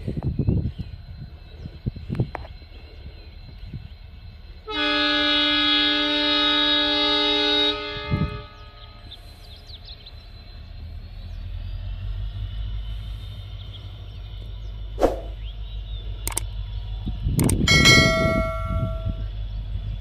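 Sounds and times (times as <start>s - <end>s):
diesel locomotive rumbling: 0.0s - 20.0s
sharp clicks: 16.2s - 16.5s, 17.4s - 17.6s
bell-like ding: 17.7s - 19.3s.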